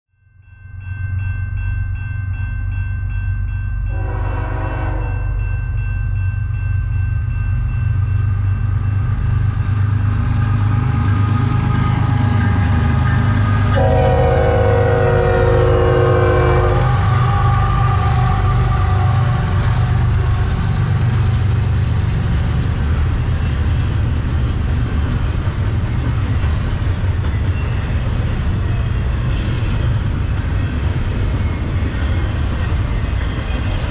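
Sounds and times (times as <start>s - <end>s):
diesel locomotive engine rumble: 3.4s - 33.9s
locomotive horn blasts: 3.9s - 5.2s, 13.7s - 19.6s
freight cars rolling on rails: 9.2s - 33.9s.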